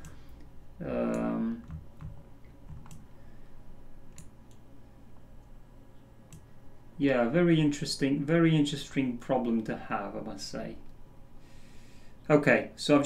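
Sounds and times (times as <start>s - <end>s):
faint low hum: 0.0s - 13.0s
computer mouse clicks: 1.1s - 3.1s, 4.1s - 4.7s, 6.3s - 6.5s.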